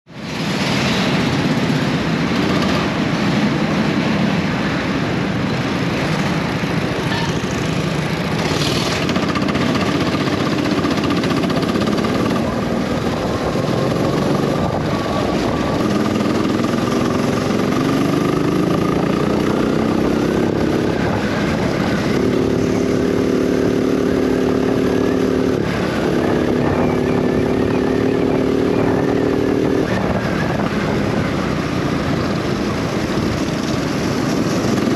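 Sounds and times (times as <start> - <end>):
heavy wind noise: 0.0 - 34.9
go-kart engine accelerating: 7.4 - 34.9.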